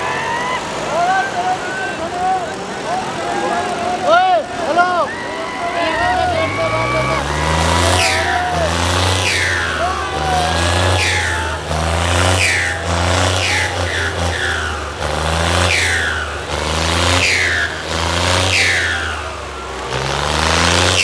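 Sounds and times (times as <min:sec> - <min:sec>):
tractor diesel engine revving: 0:00.0 - 0:21.0.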